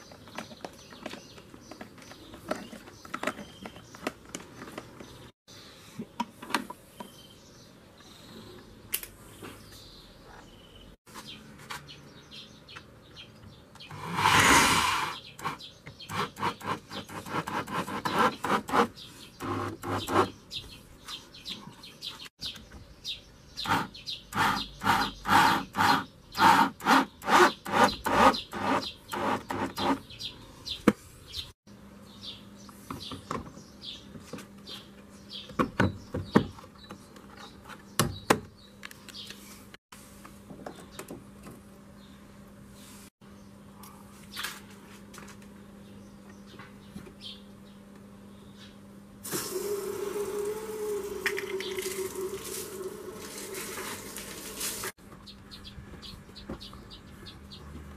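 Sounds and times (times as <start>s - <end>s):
handling knocks and clicks: 0.0s - 5.3s.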